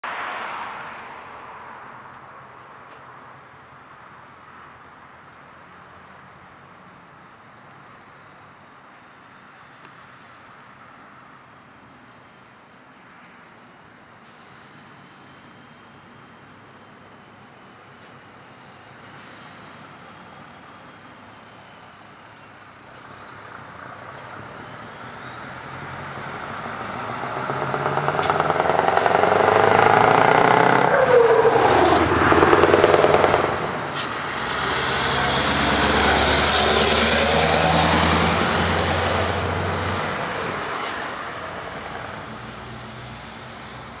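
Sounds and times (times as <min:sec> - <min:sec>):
trucks driving past: 0:14.2 - 0:44.0.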